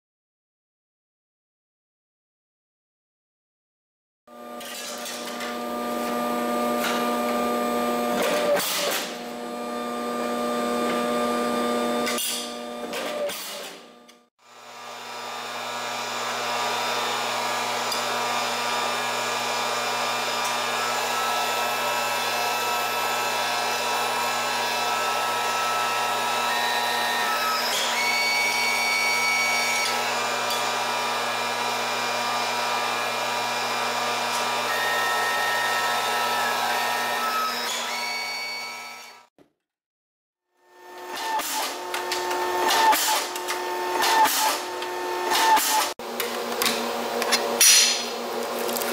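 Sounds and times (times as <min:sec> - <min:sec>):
sharp metal clanks: 0:47.6 - 0:48.1.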